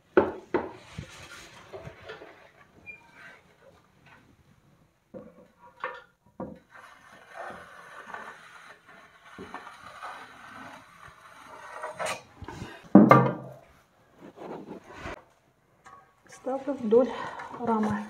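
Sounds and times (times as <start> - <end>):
metal rule scraping wet plaster: 5.6 - 12.9, 15.9 - 18.0
knocks: 12.9 - 13.6.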